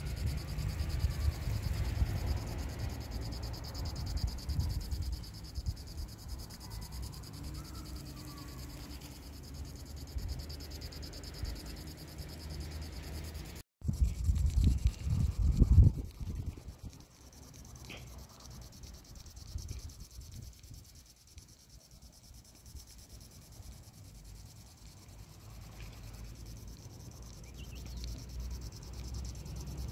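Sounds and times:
insect buzz: 0.0 - 29.9
wind buffeting microphone: 3.6 - 5.9, 13.8 - 17.0.

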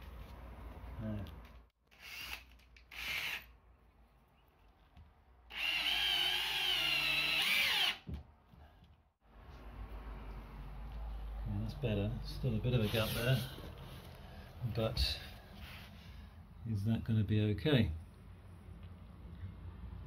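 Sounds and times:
cordless drill boring into wood: 1.9 - 3.5, 5.5 - 8.0.

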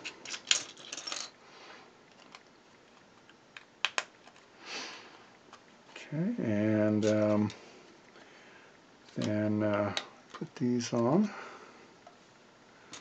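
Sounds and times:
plastic bricks clicking: 3.2 - 4.4
soft hiss: 4.4 - 13.0.

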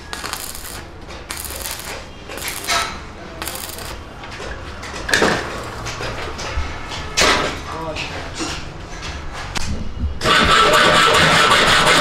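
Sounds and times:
welding arc crackling: 0.0 - 4.0.

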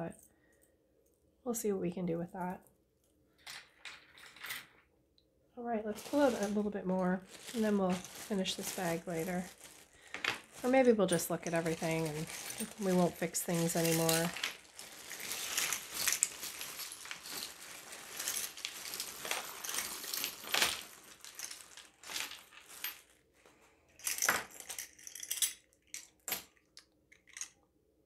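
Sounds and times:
plastic bag crinkling: 5.9 - 23.2
metal jewelry clinking: 9.4 - 23.1, 24.0 - 27.6.

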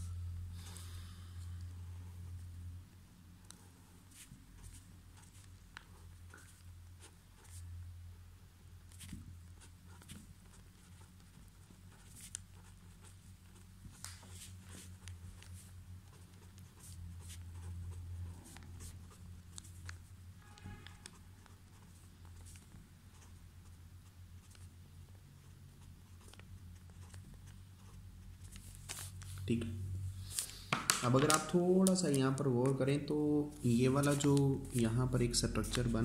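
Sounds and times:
low hum: 0.0 - 3.9, 28.3 - 30.6
pen scratching on paper: 3.5 - 7.6, 8.9 - 29.2.

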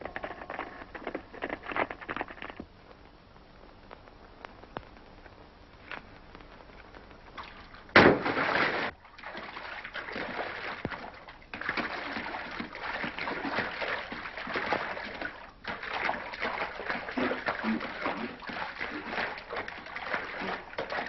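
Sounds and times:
water splashing: 7.4 - 21.0.

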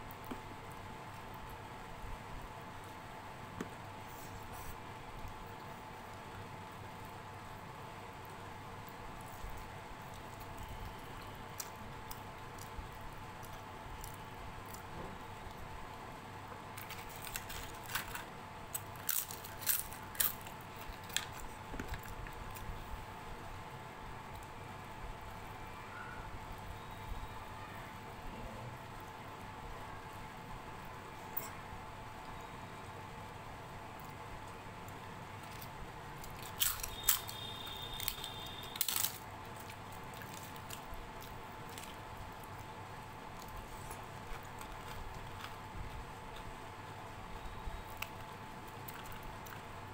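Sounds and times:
soft eating clicks: 8.1 - 15.8, 33.9 - 46.6, 47.8 - 49.9
crunchy snack being chewed: 35.4 - 46.5.

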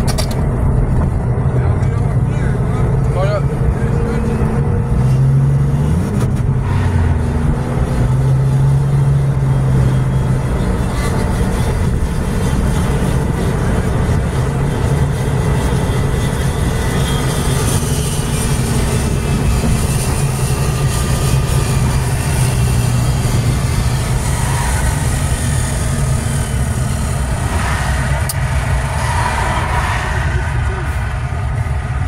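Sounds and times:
car engine hum: 0.0 - 32.0.

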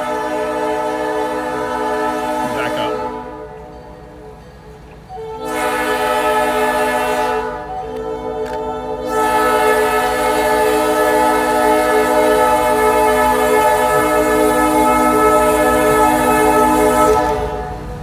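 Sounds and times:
train air horn blasts: 0.0 - 3.8, 5.1 - 18.0.

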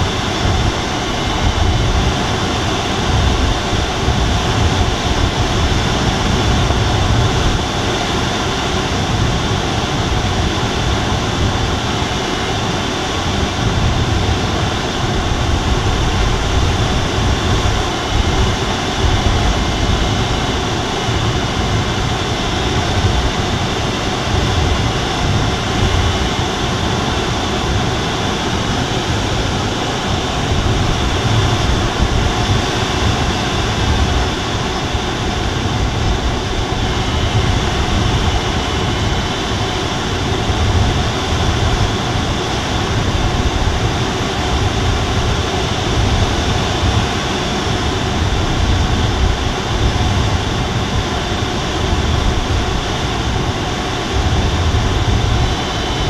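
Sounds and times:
airflow rushing over canopy: 0.0 - 56.0.

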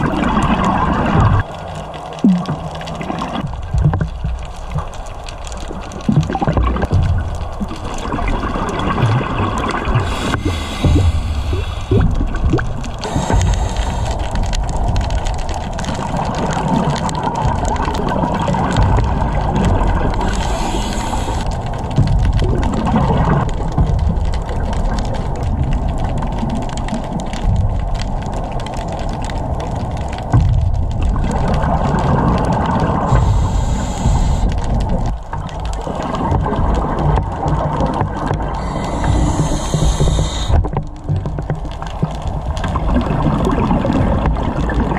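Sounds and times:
gurgling exhaled bubbles: 0.0 - 44.9
underwater water noise: 0.0 - 44.9
diver breathing through regulator: 9.9 - 12.4, 13.0 - 14.6, 20.2 - 21.7, 33.1 - 35.1, 38.4 - 40.8.

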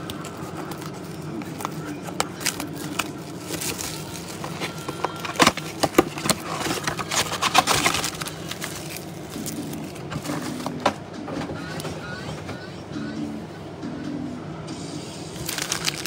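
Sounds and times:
plastic wrappers tearing: 0.0 - 10.8, 15.4 - 16.0
steady low hum: 0.0 - 16.0.

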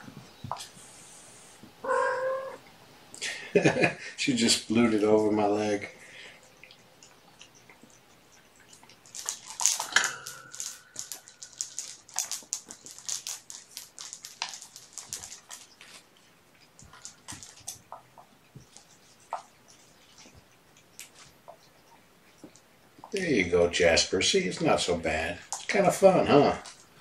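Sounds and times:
kitten mewing: 1.8 - 2.6
scratchy clicking and rustling: 8.6 - 21.4.

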